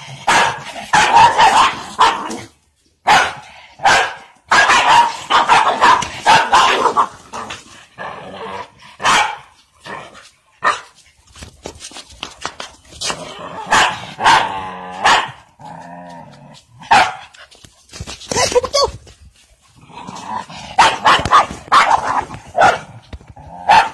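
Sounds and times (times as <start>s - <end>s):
dog barking: 0.2s - 2.4s, 3.0s - 7.2s, 9.0s - 9.5s, 10.6s - 10.9s, 13.6s - 15.5s, 16.9s - 17.3s, 20.8s - 22.9s, 23.6s - 23.9s
dog growling: 7.3s - 9.0s, 19.8s - 21.0s.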